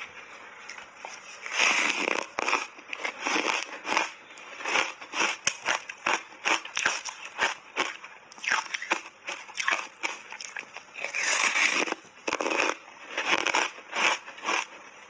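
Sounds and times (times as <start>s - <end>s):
ice bar crunching: 0.7s - 14.8s.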